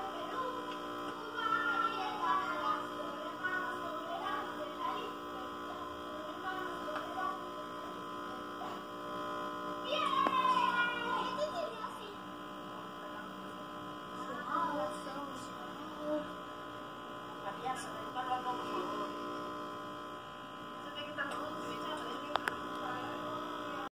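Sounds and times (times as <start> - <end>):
steady electrical hum: 0.0 - 23.9
child's high-pitched voice: 1.2 - 5.2, 9.8 - 12.2.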